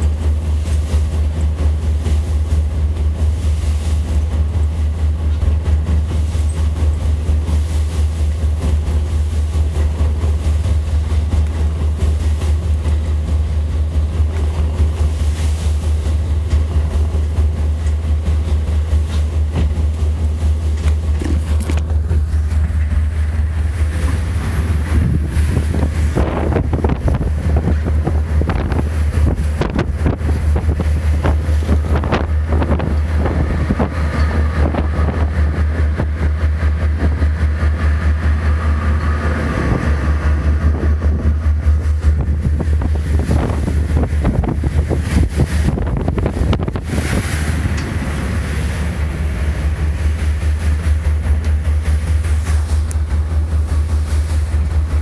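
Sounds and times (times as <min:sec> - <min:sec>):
boat diesel engines droning: 0:00.0 - 0:55.0
water rushing: 0:00.0 - 0:55.0
wind buffeting microphone: 0:00.0 - 0:55.0.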